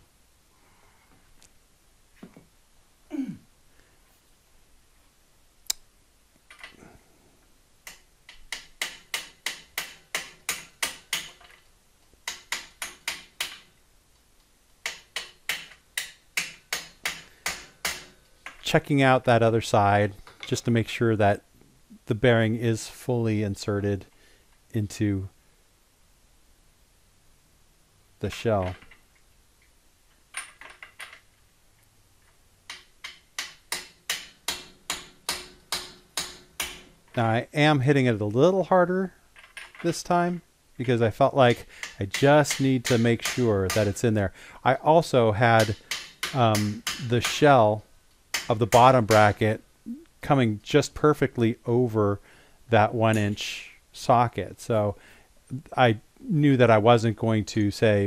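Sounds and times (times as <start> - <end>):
hammer tapping on metal: 7.9 - 11.4, 32.7 - 36.9, 41.8 - 44.0, 45.6 - 47.4
hammer tapping on metal socket: 41.8 - 44.0.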